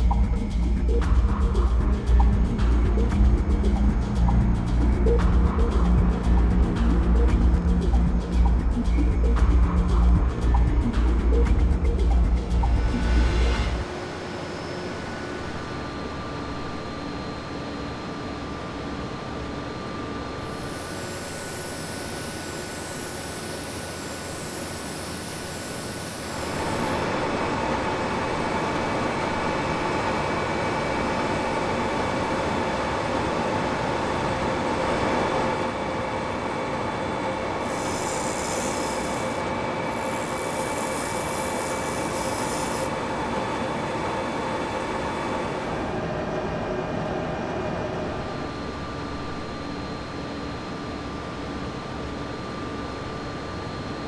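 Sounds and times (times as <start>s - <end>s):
machinery whining tones: 0.0s - 53.9s
workshop machinery hiss and hum: 20.2s - 46.1s.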